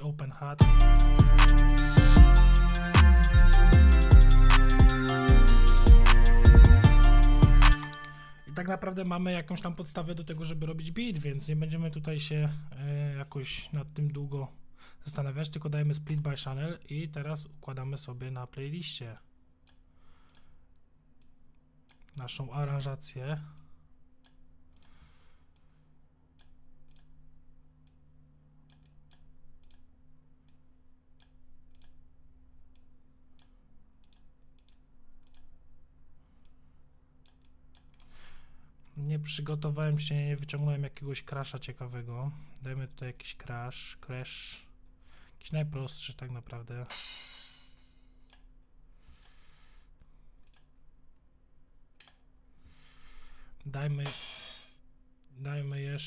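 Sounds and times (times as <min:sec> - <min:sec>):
computer mouse clicking: 0:26.4 - 0:27.2, 0:28.7 - 0:30.6, 0:31.2 - 0:32.0, 0:32.7 - 0:35.5, 0:50.4 - 0:50.7
crash cymbal: 0:46.9 - 0:48.0, 0:54.1 - 0:54.8.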